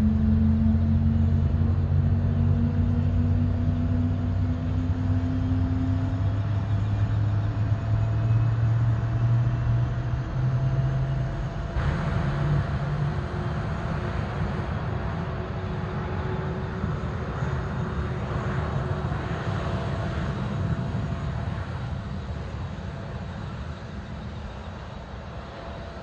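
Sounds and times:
jet engines rumbling: 0.0s - 26.0s.

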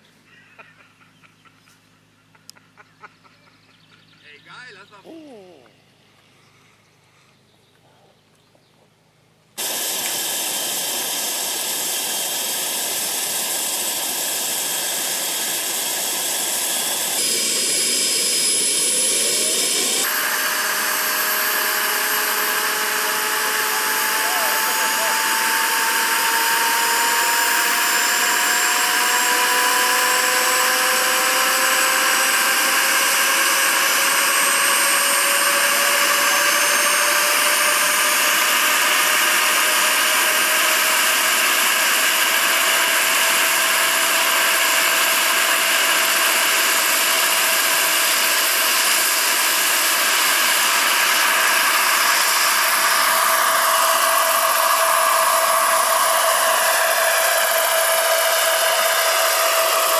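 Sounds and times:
model helicopter rotors whining: 9.6s - 59.9s.

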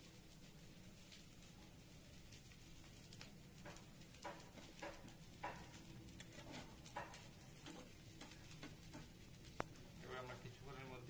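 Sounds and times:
metal spatula tapping and scraping pan: 3.6s - 9.8s.

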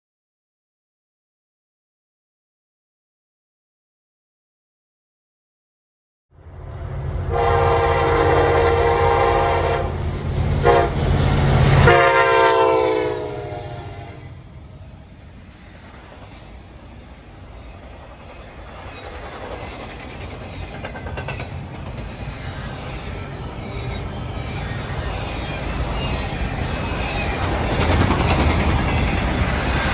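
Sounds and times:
diesel locomotive engine rumbling: 6.4s - 29.9s
locomotive horn blasts: 7.3s - 11.0s, 11.8s - 14.2s
train wheels clicking on rails: 14.2s - 29.9s.

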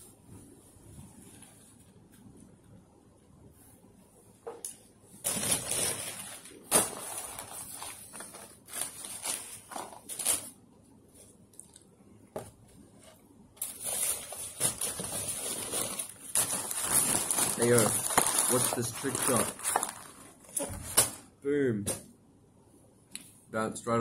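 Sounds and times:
paper packaging rustling: 5.2s - 10.6s, 13.6s - 21.2s.

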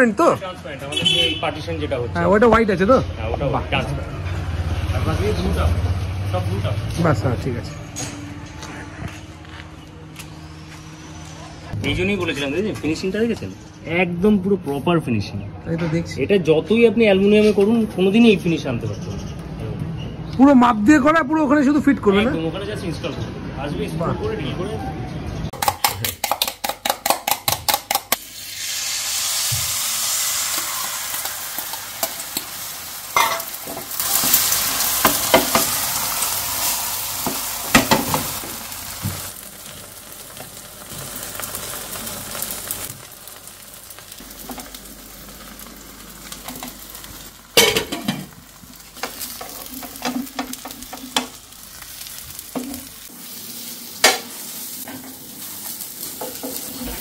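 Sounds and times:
egg sizzling in a pan: 26.2s - 57.0s.

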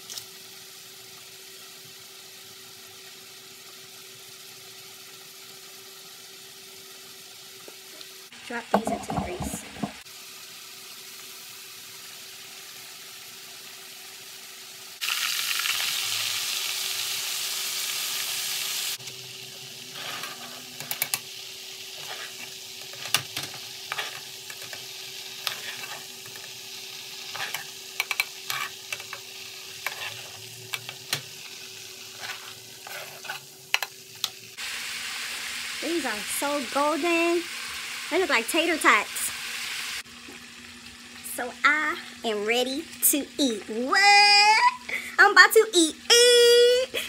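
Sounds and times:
food deep-frying in oil: 0.0s - 47.0s
metal utensils clinking on pot: 27.3s - 29.2s.

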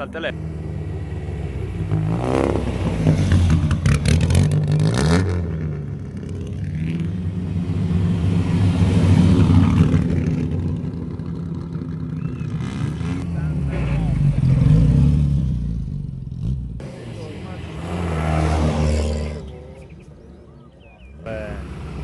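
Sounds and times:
rally cars driving past: 0.0s - 22.0s.

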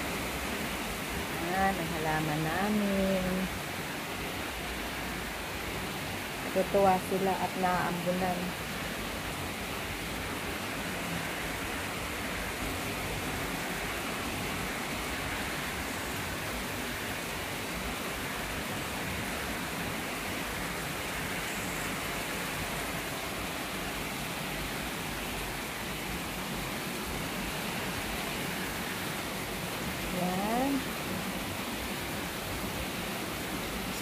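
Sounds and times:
heavy rain falling: 0.0s - 34.0s.

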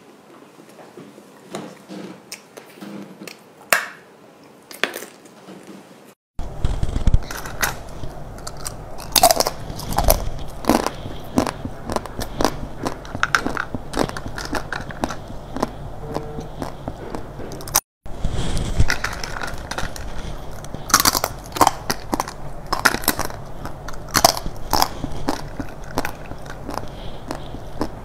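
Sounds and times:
low steady hum: 6.4s - 28.0s
candy crunching: 6.5s - 28.0s.

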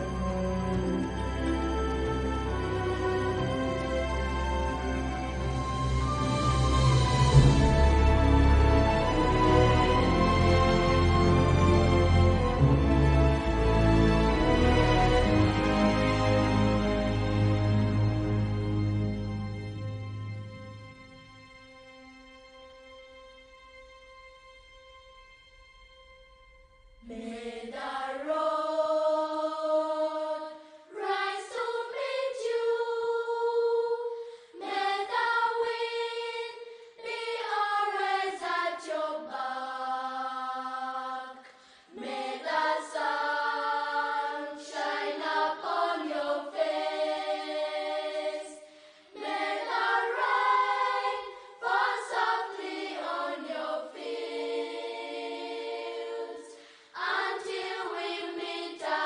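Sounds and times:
choir singing long held notes: 0.0s - 20.9s, 27.0s - 59.0s.

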